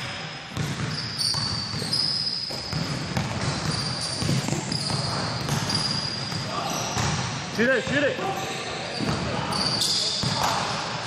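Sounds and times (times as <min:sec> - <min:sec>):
basketball bouncing on court: 0:00.5 - 0:08.1, 0:09.0 - 0:09.4, 0:10.2 - 0:10.6
shoes thudding and squeaking: 0:00.6 - 0:07.2.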